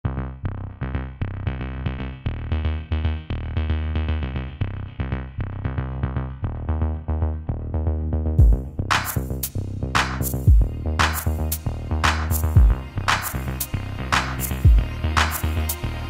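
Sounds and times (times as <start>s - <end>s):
electronic music with beat: 6.3s - 16.0s.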